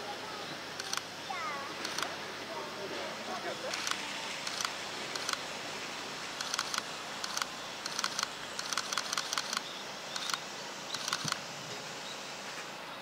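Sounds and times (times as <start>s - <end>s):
camera shutters clicking: 1.8s - 2.1s, 3.7s - 5.4s, 6.4s - 11.4s.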